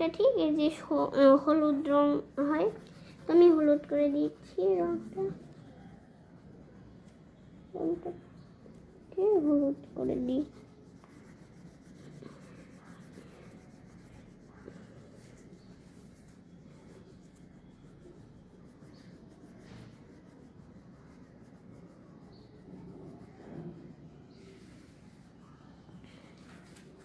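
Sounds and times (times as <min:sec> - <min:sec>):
crayon rubbing on paper: 0:00.2 - 0:27.0.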